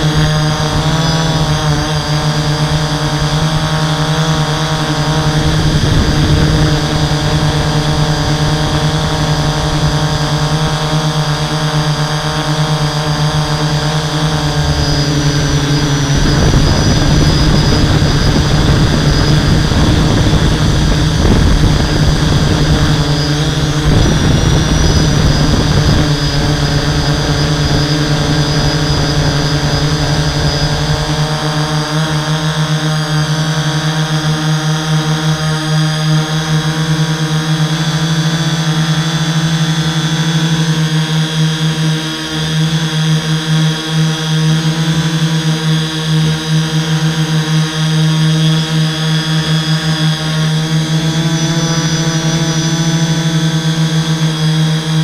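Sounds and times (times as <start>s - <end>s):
drone motors and propellers droning: 0.0s - 55.0s
rough rushing noise: 12.7s - 31.4s.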